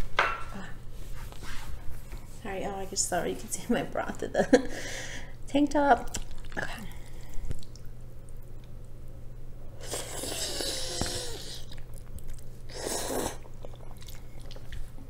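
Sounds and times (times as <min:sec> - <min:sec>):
chewing: 0:06.1 - 0:08.8, 0:09.8 - 0:15.0
noodles slurped: 0:09.8 - 0:15.0.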